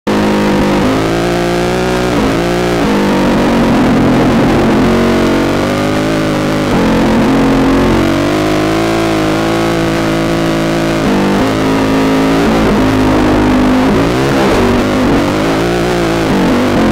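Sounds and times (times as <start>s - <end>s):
motorcycle engine revving: 0.1s - 16.9s.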